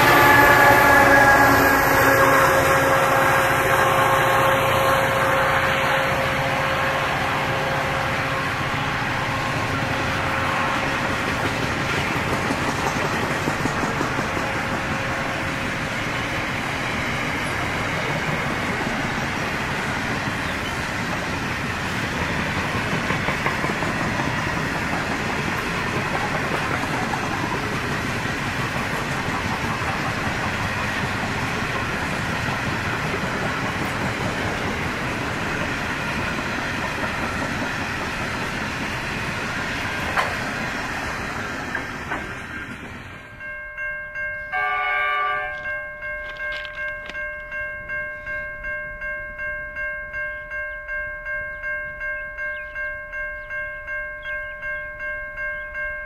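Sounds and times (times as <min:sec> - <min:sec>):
freight train rumbling past: 0:00.0 - 0:56.0
level crossing bells ringing: 0:43.3 - 0:56.0.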